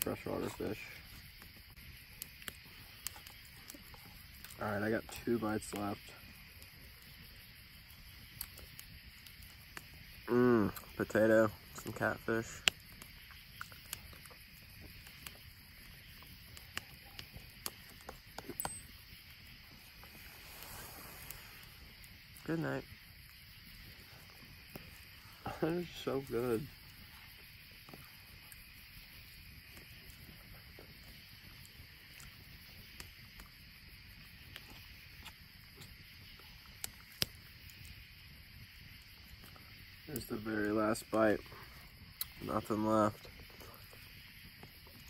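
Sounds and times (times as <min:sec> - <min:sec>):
campfire crackling and popping: 0:00.0 - 0:45.0
high hiss: 0:18.8 - 0:30.1.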